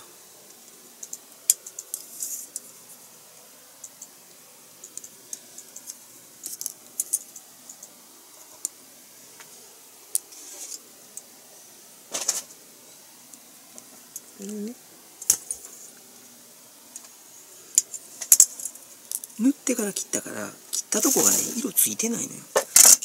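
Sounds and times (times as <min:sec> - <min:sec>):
rustling: 0:00.0 - 0:04.2, 0:04.8 - 0:23.0
plastic parts clicking and rattling: 0:04.8 - 0:07.8.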